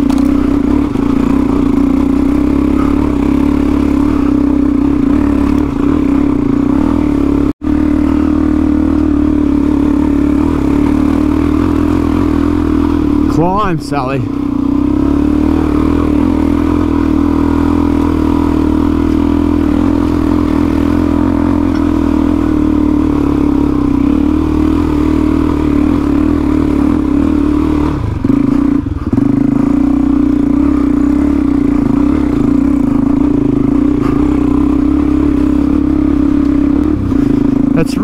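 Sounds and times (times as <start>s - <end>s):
clatter: 0.0s - 7.0s, 17.9s - 23.0s, 31.5s - 37.8s
trail bike engine under load: 0.0s - 38.0s.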